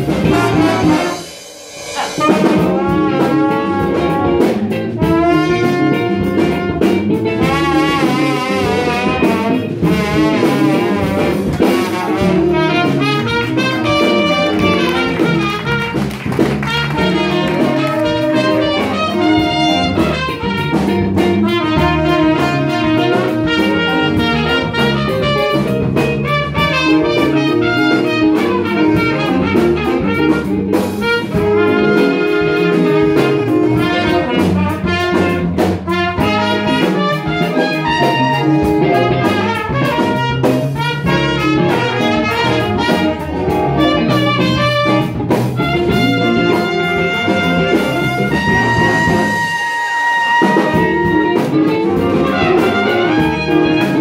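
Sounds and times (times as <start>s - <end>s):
jazz big band playing: 0.0s - 54.0s.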